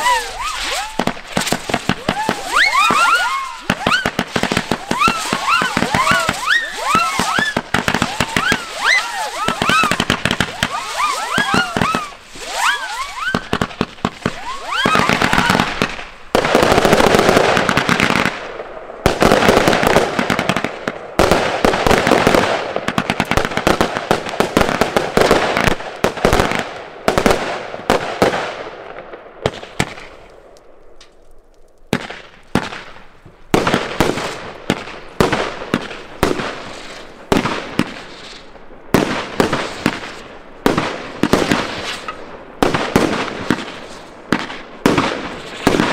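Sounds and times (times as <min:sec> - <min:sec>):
firework whistles: 0:00.0 - 0:16.0
fireworks bangs and crackling: 0:00.0 - 0:45.9.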